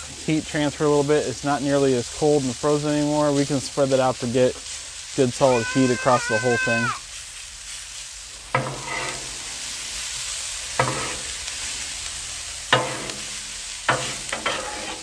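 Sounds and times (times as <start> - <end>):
food sizzling: 0.0 - 15.0
metal spatula scraping griddle: 8.5 - 15.0.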